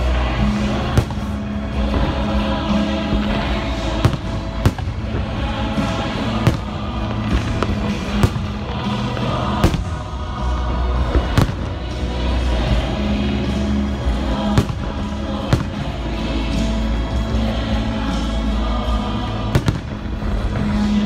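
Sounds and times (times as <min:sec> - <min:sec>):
fireworks bursting: 0:00.0 - 0:12.8, 0:19.5 - 0:21.0
music playing: 0:00.0 - 0:21.0.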